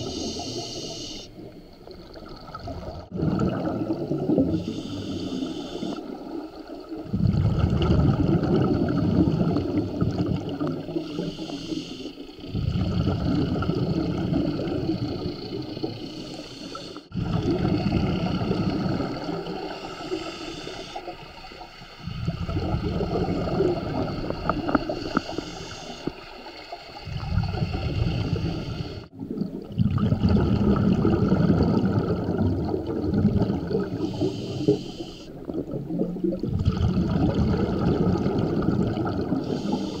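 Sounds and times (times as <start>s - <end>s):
regulator hissing inhalations: 0.0s - 1.5s, 4.5s - 6.4s, 10.8s - 12.5s, 15.3s - 17.2s, 18.6s - 22.1s, 23.9s - 26.9s, 27.7s - 29.1s, 33.8s - 35.5s, 39.4s - 40.0s
underwater exhaust bubbling: 0.0s - 40.0s.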